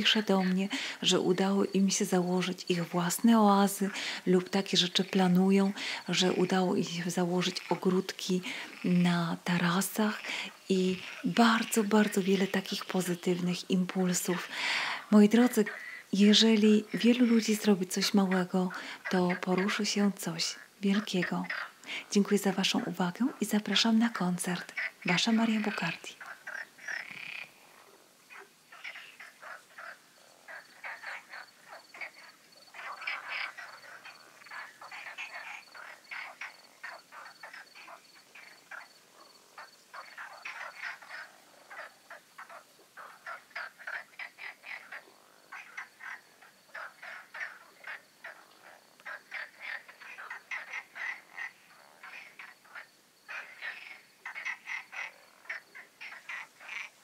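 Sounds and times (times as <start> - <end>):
frogs croaking: 0.0 - 57.0.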